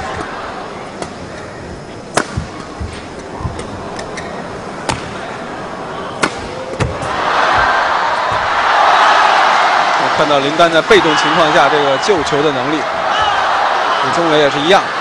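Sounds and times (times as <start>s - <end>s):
crowd cheering: 5.4s - 15.0s.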